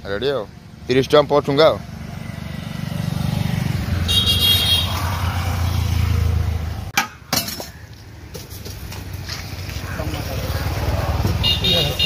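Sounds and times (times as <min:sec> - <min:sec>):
vehicle engine humming: 0:00.0 - 0:12.0.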